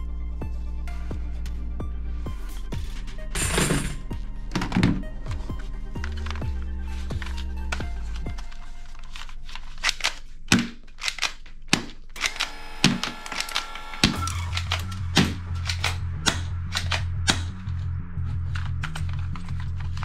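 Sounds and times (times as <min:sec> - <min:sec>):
background music: 0:00.0 - 0:20.0
plastic toy guns clacking: 0:08.3 - 0:17.5.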